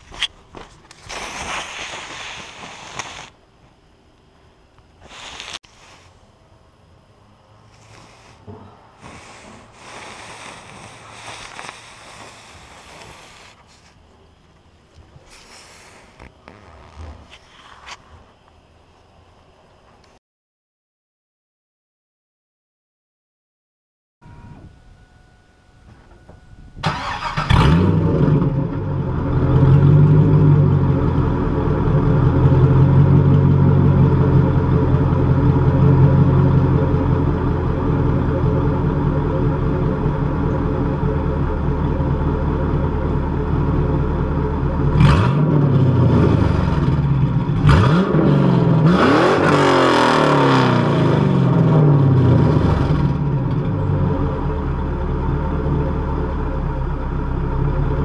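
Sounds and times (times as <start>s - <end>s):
car engine idling: 24.2s - 48.9s, 49.7s - 58.0s
car engine starting: 26.0s - 58.0s
car engine revving: 26.9s - 56.1s.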